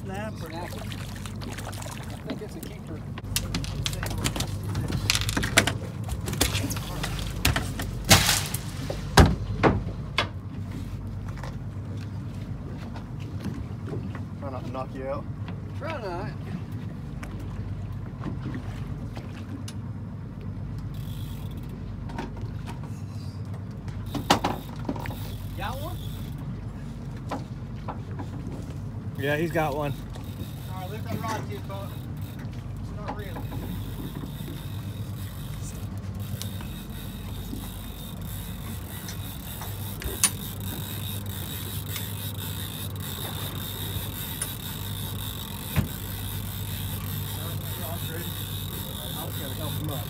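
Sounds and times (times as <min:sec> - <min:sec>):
boat engine idling: 0:00.0 - 0:50.0
steady low hum: 0:00.0 - 0:50.0
fishing reel whirring: 0:03.3 - 0:07.2, 0:20.8 - 0:21.9, 0:24.0 - 0:26.6, 0:29.2 - 0:50.0.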